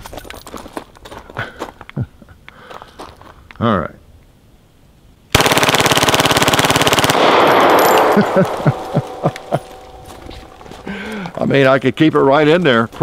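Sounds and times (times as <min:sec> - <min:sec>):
automatic gunfire burst: 0:05.3 - 0:09.5
gunfire echo: 0:05.4 - 0:10.9.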